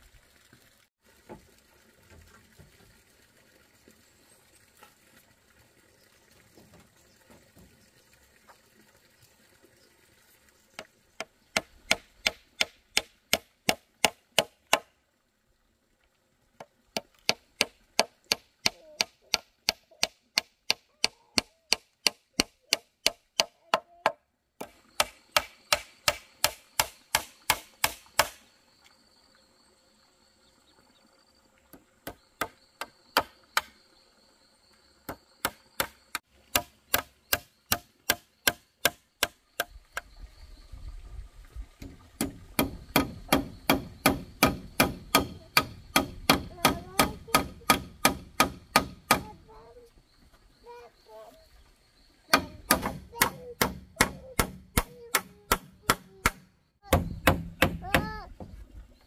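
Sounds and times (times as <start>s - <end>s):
hammer striking nails into wood: 21.7s - 28.4s, 42.2s - 49.3s, 52.3s - 58.1s.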